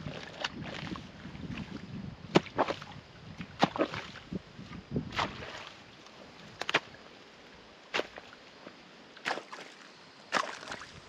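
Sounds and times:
wet sloshing: 0.0s - 4.4s, 5.1s - 5.8s
digging tool striking wet soil: 2.3s - 4.2s, 5.1s - 5.7s, 6.6s - 7.0s, 7.9s - 8.3s, 9.2s - 9.7s.

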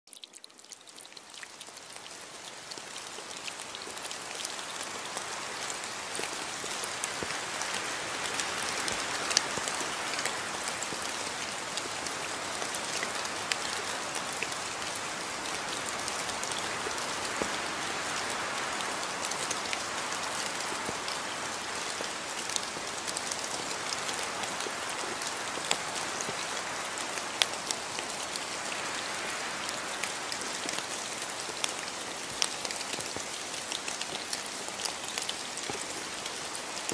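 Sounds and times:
raindrops ticking: 0.1s - 15.4s, 30.0s - 36.9s
steady rain: 0.1s - 36.9s.

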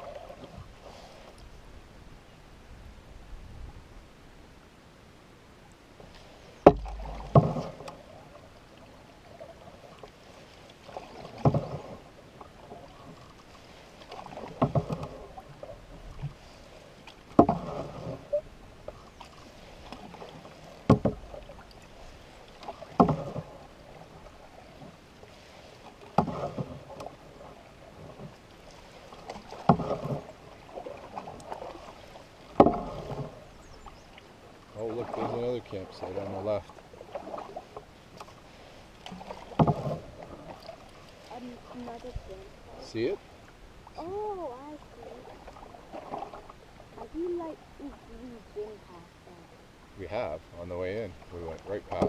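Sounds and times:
paddle swishing through water: 0.0s - 4.5s, 5.4s - 52.0s
paddle knocking: 6.0s - 49.2s, 49.8s - 52.0s.

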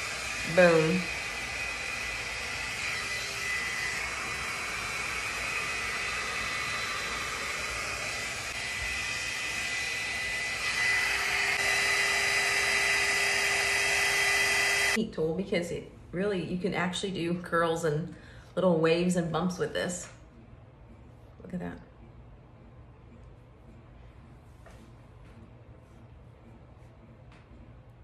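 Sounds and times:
hair styler fan whining: 0.0s - 15.0s.

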